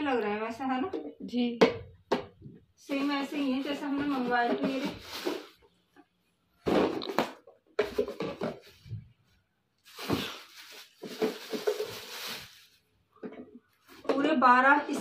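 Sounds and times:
plastic wrap rustling and crinkling: 2.9s - 5.8s, 6.7s - 13.0s.

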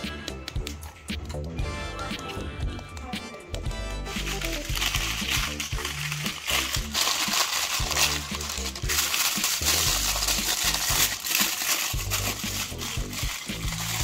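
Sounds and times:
background music with bass: 0.0s - 14.0s
foil crinkling: 4.1s - 14.0s.

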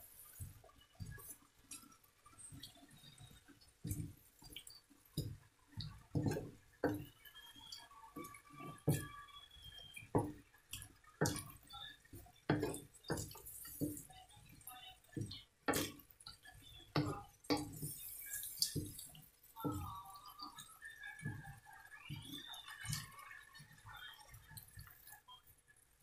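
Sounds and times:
spatula knocking on wok: 12.5s - 13.4s.

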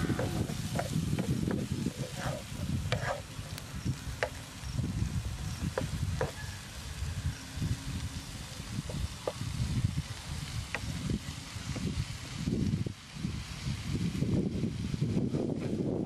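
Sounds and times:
spatula scraping frying pan: 0.0s - 6.4s
food sizzling: 0.0s - 15.7s.

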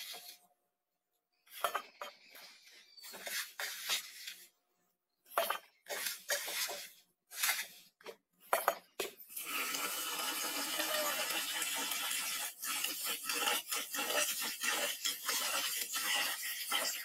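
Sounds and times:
rice poured into metal pot: 9.3s - 17.0s
tap water running into pot: 9.3s - 17.0s.

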